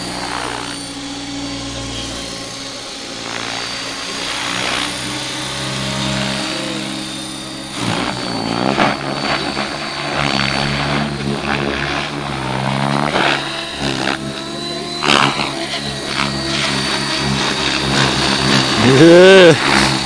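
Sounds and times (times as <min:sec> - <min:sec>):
rc helicopter motor whine: 0:00.0 - 0:20.0.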